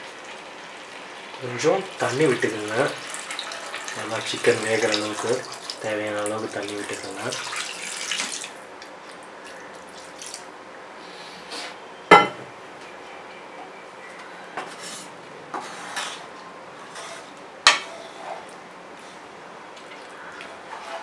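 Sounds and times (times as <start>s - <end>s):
spatula stirring in pan: 20.4s - 21.0s.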